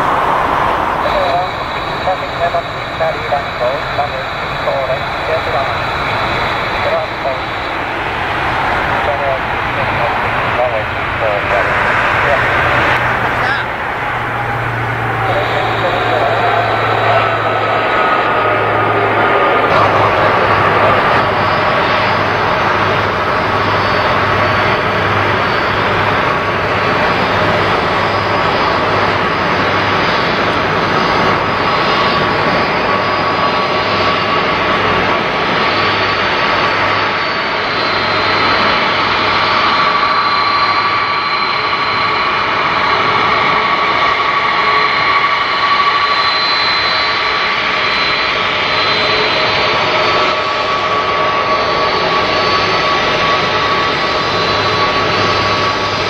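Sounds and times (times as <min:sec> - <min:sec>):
jet engines whining: 0:00.0 - 0:56.0.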